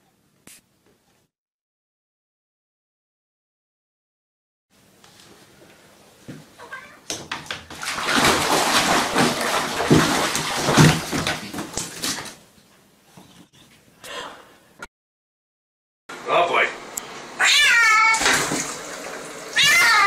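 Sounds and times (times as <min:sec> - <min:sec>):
water splashing in bathtub: 0:07.0 - 0:12.5, 0:17.8 - 0:20.0.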